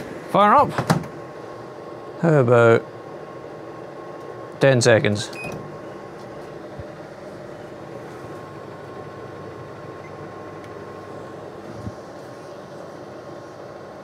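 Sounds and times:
microwave oven fans whirring: 0.0 - 14.0.

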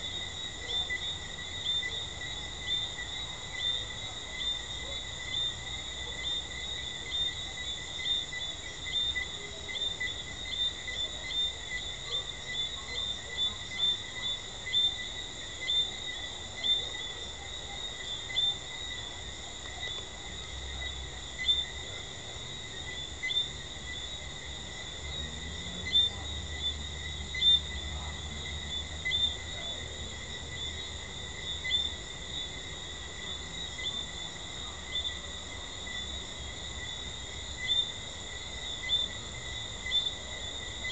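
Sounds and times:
high ringing frog chorus: 0.0 - 40.9
treefrogs chirping: 19.8 - 40.9.

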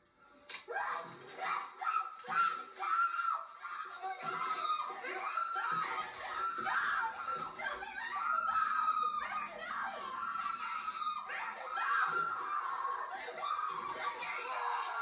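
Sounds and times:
girls giggling and squealing: 0.7 - 15.0.

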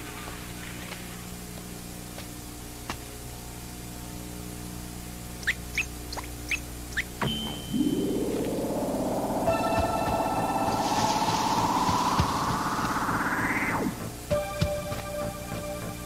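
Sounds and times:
low steady hum: 0.0 - 16.0
steady electronic beep: 7.2 - 16.0.

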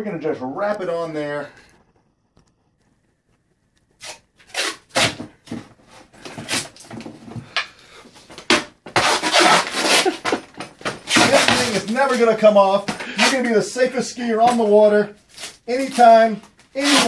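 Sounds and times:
duct tape ripping off roll: 3.9 - 5.3, 6.3 - 6.9, 8.5 - 10.4, 11.0 - 12.0, 15.3 - 17.0.

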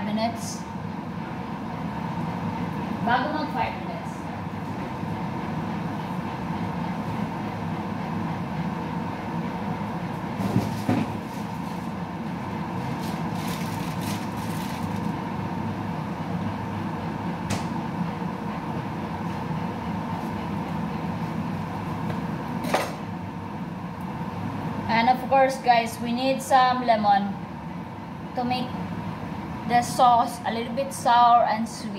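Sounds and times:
faint hum: 0.0 - 31.9.

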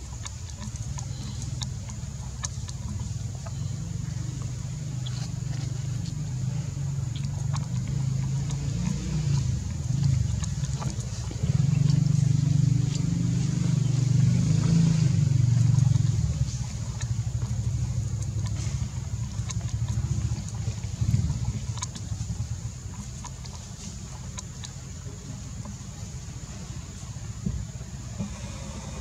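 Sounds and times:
soft ticks: 0.0 - 13.4
low engine rumble: 0.0 - 29.0.

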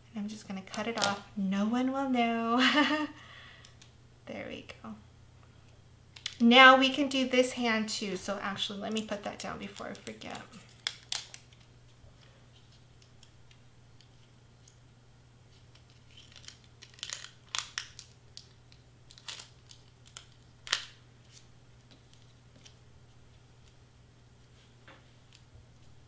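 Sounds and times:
steady low hum: 0.0 - 26.0
paper rustling and crinkling: 15.5 - 18.5.

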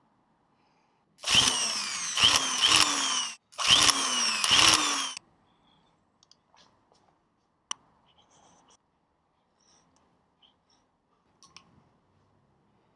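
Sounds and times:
electric tufting gun motor: 1.2 - 5.2.

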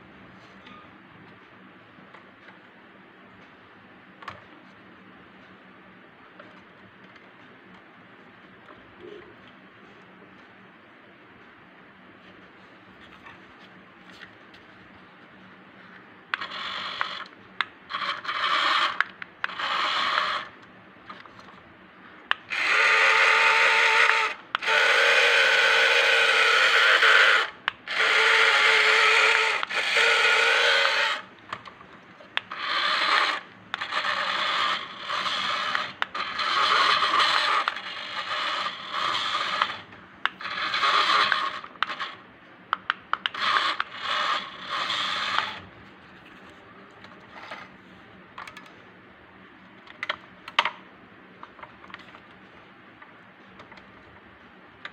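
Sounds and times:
small electric motors whirring: 16.3 - 20.6, 22.3 - 31.7, 32.4 - 42.2, 43.1 - 45.7.

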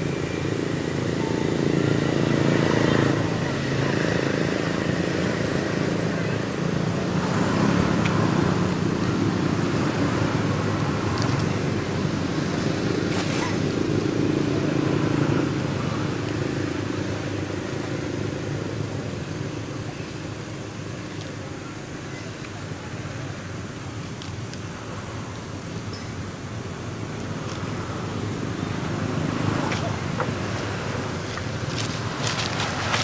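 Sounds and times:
vehicle engine running: 22.6 - 33.0.

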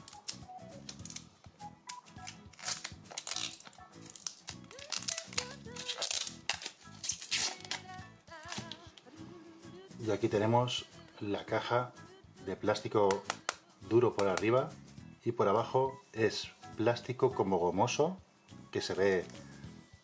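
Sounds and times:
plastic wrap crinkling and tearing: 0.0 - 1.3, 1.9 - 8.8
background music: 0.0 - 20.0.

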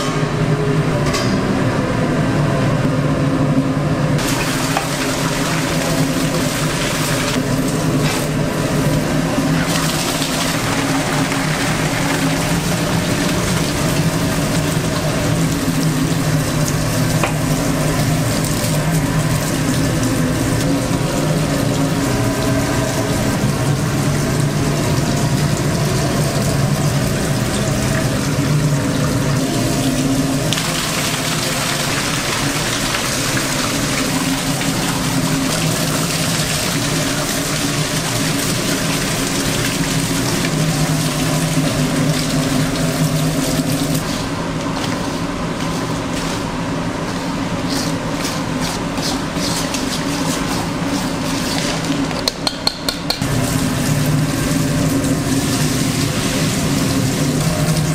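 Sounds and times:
equipment hum: 0.0 - 57.9
rushing water-like sound: 4.2 - 46.5, 53.1 - 57.9.

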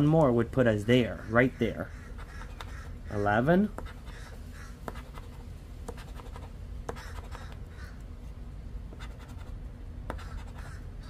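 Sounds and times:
scratching lottery ticket: 3.6 - 4.3, 4.9 - 7.5, 9.0 - 10.8.

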